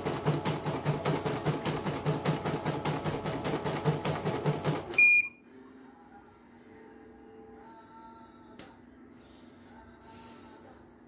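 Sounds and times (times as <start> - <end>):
embroidery machine stitching: 0.0 - 5.0.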